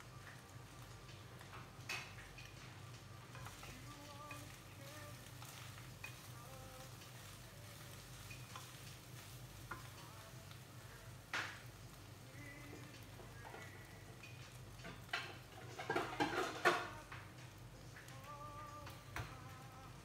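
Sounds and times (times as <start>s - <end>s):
faint sizzle: 0.0s - 20.0s
utensil scraping a frying pan: 14.9s - 17.0s.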